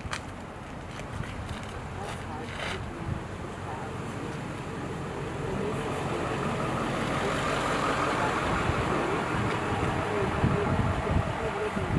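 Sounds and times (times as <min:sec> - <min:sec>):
vehicle engine running: 0:03.4 - 0:11.9.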